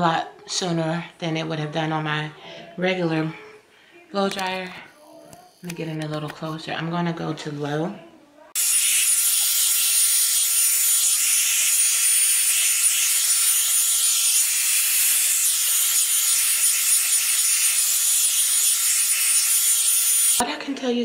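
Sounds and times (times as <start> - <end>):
hair dryer blowing air: 8.6 - 20.4.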